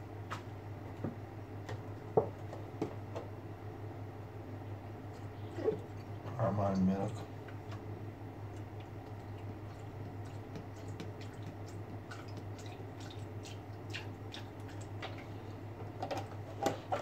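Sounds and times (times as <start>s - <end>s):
low steady hum: 0.0s - 17.0s
faint drips and ticks: 8.4s - 15.3s.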